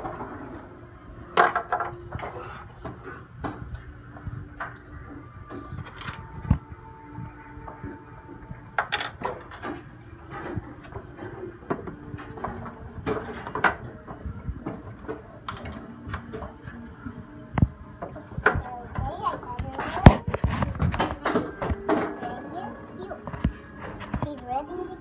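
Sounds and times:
plastic toys clicking and knocking: 1.4 - 3.7, 5.5 - 6.3, 8.8 - 16.6, 18.0 - 22.4.

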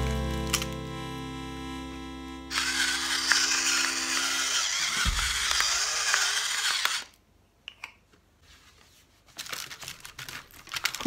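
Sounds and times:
electric pepper mill grinding: 0.0 - 7.1.

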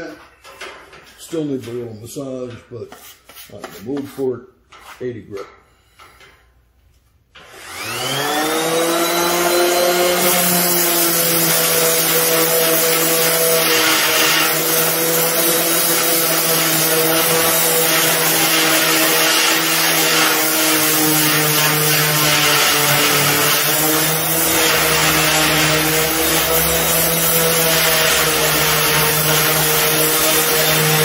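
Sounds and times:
orbital sander sanding metal: 7.5 - 31.0.

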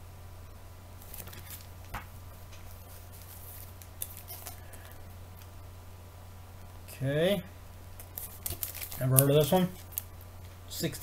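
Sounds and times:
plastic bag crinkling: 8.0 - 10.1.

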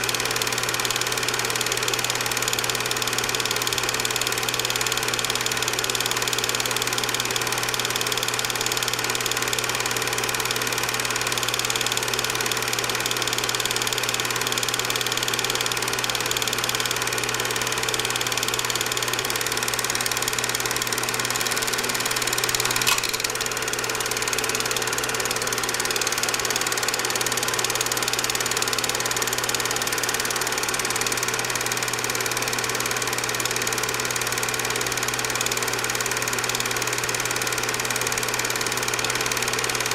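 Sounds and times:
film projector motor whirring: 0.0 - 39.9
sharp click: 22.1 - 23.5.

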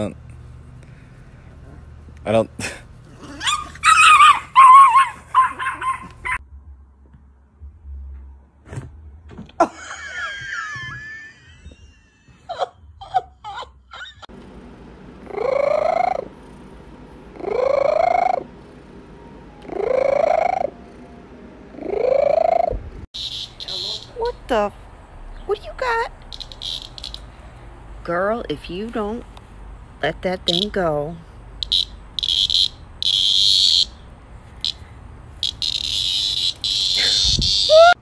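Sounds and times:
cats yowling: 3.2 - 6.4.

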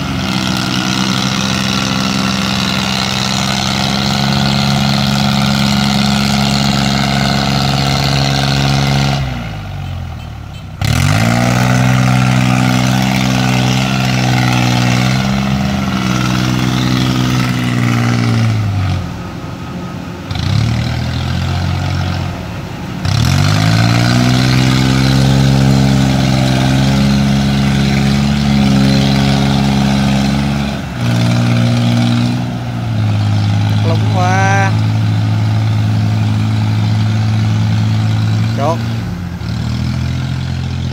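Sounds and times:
diesel engine straining: 0.0 - 40.9.

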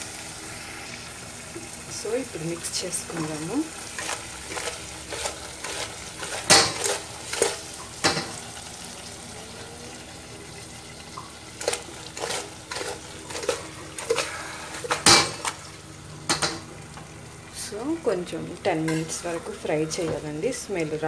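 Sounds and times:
frying sizzle: 0.0 - 21.0
spoon scraping metal pot: 3.9 - 7.8, 11.6 - 15.6.

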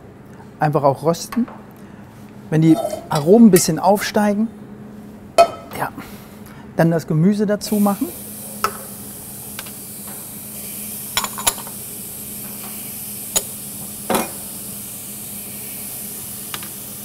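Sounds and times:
food sizzling in a pot: 7.7 - 17.0.

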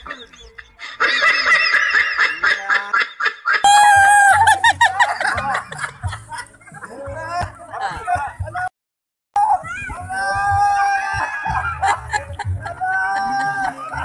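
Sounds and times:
people laughing: 0.0 - 8.6, 10.7 - 14.0
people shrieking and shouting: 3.6 - 4.9, 9.4 - 14.0.

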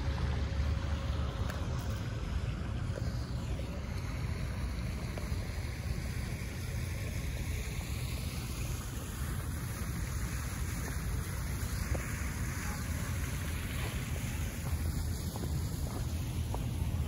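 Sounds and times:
fountain water falling: 0.0 - 17.0
wind rumbling on microphone: 0.0 - 17.0.

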